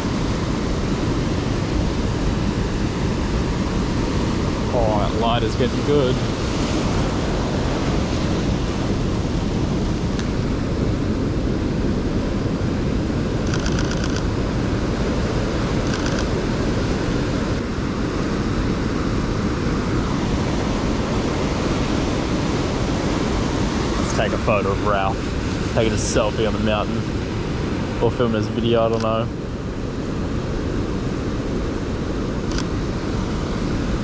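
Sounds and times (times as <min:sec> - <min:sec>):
surf breaking on rocky shore: 0:00.0 - 0:13.5, 0:14.2 - 0:34.0
wind buffeting microphone: 0:00.0 - 0:28.6
camera shutter clicks: 0:13.5 - 0:14.3, 0:15.8 - 0:16.3.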